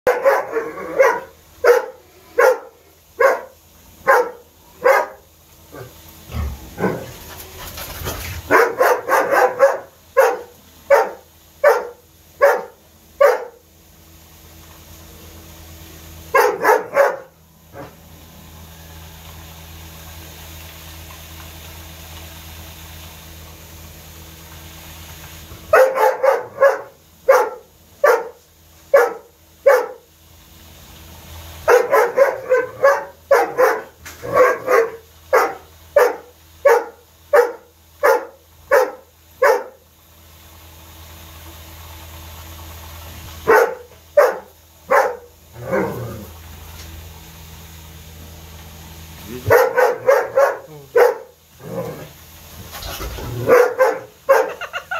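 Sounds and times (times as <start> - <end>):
dog barking: 0.0 - 5.9, 8.5 - 13.6, 16.3 - 18.0, 25.7 - 30.1, 31.6 - 39.8, 43.4 - 45.3, 49.4 - 51.3, 53.4 - 54.7.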